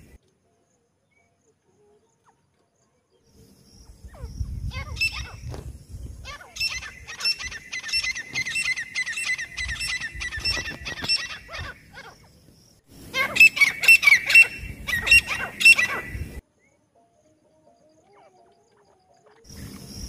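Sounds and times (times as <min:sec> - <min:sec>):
francolins shrill calling: 0:03.7 - 0:05.5, 0:06.2 - 0:16.8.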